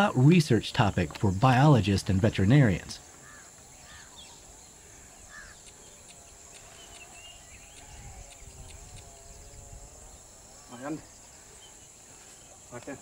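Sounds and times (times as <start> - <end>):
insects droning: 0.0 - 13.0
faint bird calls: 3.0 - 13.0.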